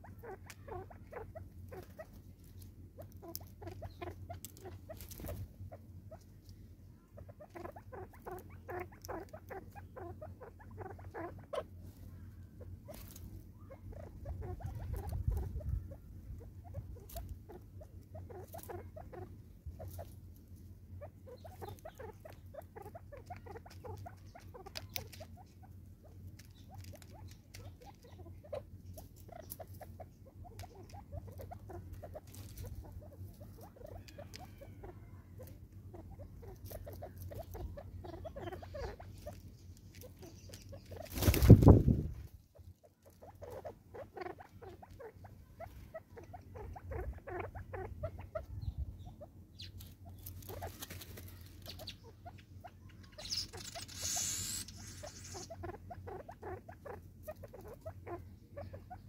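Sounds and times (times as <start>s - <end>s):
bird wingbeats: 40.9s - 42.2s, 50.3s - 51.5s.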